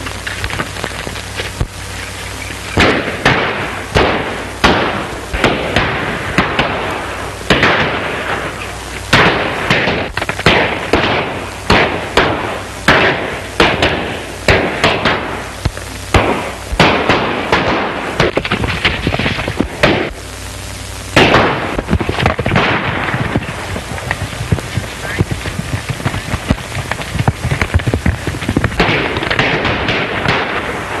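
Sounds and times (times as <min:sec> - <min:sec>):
low steady hum: 0:00.0 - 0:31.0
gunshots with echo: 0:16.1 - 0:18.5, 0:28.7 - 0:30.8.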